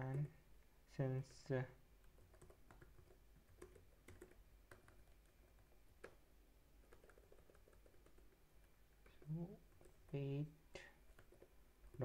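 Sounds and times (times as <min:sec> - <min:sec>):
keyboard typing: 0:02.0 - 0:10.3, 0:10.9 - 0:12.0.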